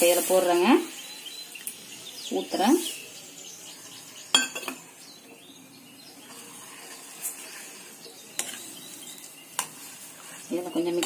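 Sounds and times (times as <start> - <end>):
spoon clinking against pan: 4.3 - 4.8.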